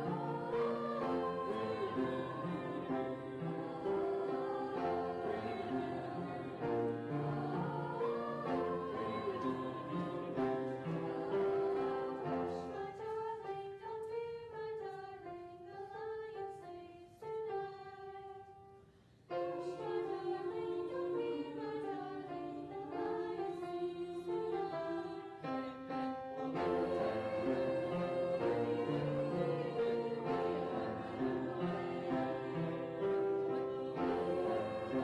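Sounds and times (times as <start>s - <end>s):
choir singing: 0.0s - 18.6s, 19.3s - 35.0s.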